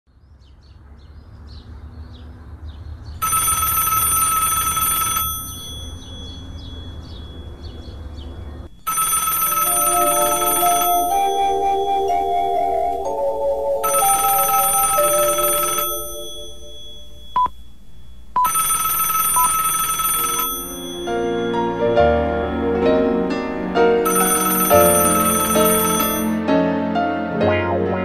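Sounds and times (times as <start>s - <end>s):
old telephone bell ringing: 3.2s - 8.1s, 8.8s - 12.2s, 13.1s - 17.8s, 18.4s - 21.8s, 24.0s - 26.4s
slow piano melody: 9.6s - 17.4s, 20.6s - 28.0s.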